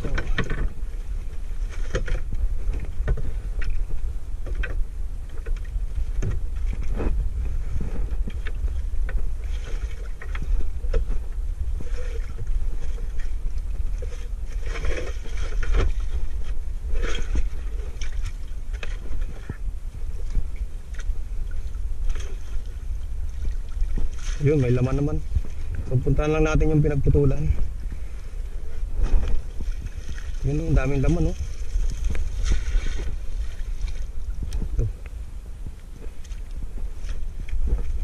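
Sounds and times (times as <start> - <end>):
wind rumble on microphone: 0.0 - 38.0.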